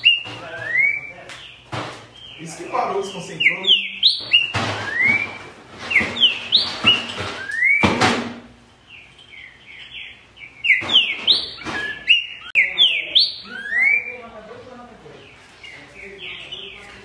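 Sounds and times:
bird singing whistled phrases: 0.0 - 1.6, 2.2 - 7.9, 9.3 - 14.2.

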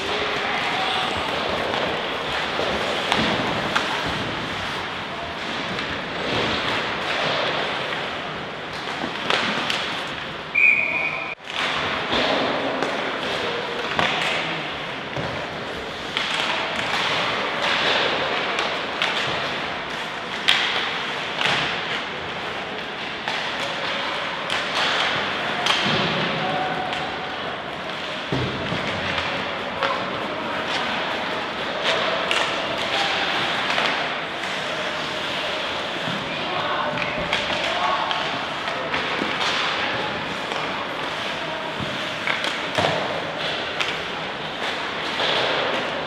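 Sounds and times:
sports hall background noise: 0.0 - 46.0
referee's whistle blast: 10.5 - 11.4.

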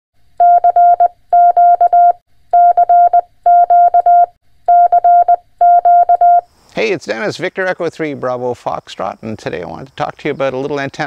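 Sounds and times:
morse code beeps: 0.4 - 6.4.

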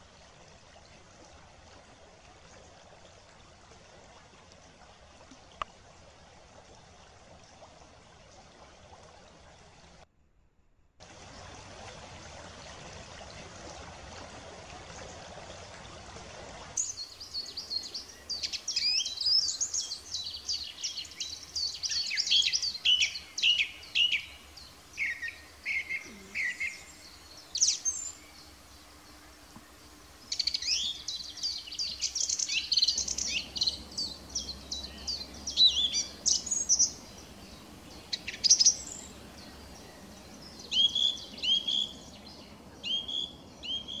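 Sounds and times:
songbirds singing: 16.8 - 44.0.

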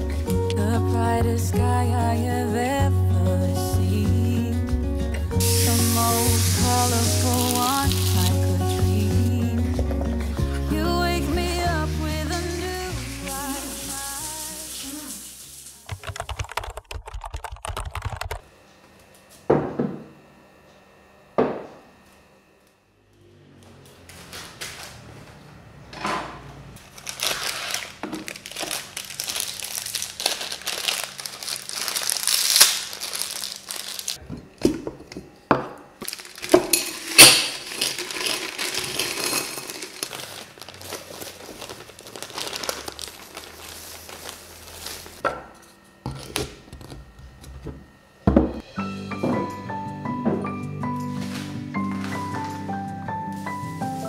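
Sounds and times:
plastic packets crinkling: 5.4 - 9.0, 26.8 - 34.2, 36.0 - 45.2.

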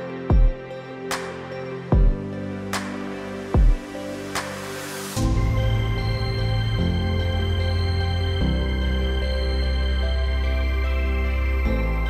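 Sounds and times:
held chords over slow beat: 0.3 - 0.8, 1.9 - 4.5.

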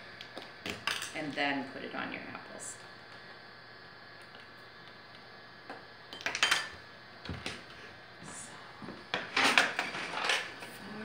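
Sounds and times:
utensils clinking and knocking: 9.2 - 10.6.

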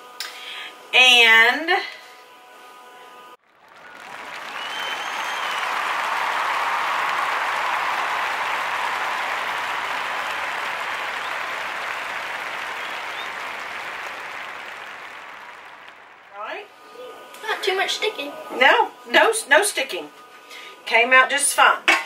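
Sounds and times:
crowd applause: 3.4 - 16.5
short whistles: 3.8 - 5.9, 12.7 - 13.6.

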